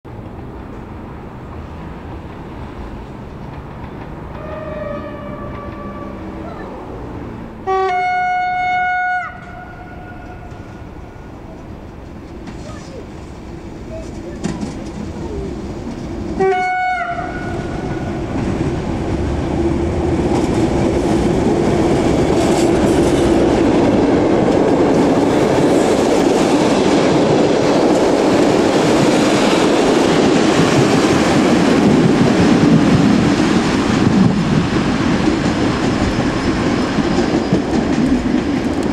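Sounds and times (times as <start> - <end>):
diesel locomotive engine rumble: 0.1 - 38.9
train coaches clattering over rail joints: 2.2 - 6.4, 11.6 - 16.4, 17.6 - 38.9
locomotive horn blast: 4.3 - 6.4, 7.6 - 11.2, 16.4 - 18.2.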